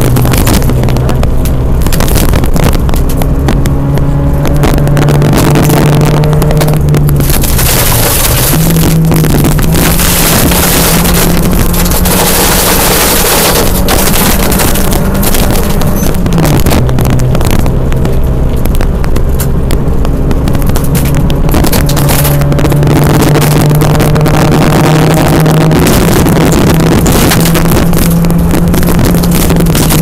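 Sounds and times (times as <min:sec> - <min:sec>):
car engine running hard: 0:00.0 - 0:30.0
stones clicking under car: 0:00.0 - 0:30.0
tyres on gravel: 0:05.4 - 0:24.6.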